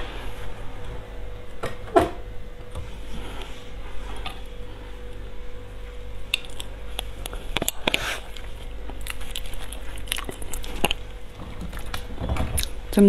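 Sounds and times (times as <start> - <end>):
soft fruit being chewed: 2.9 - 12.8.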